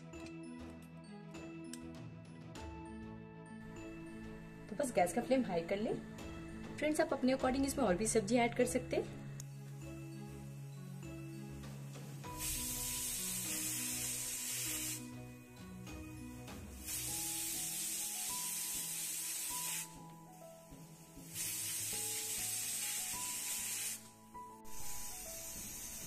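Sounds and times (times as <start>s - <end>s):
pressure cooker whistling: 12.2s - 15.1s, 16.9s - 20.0s.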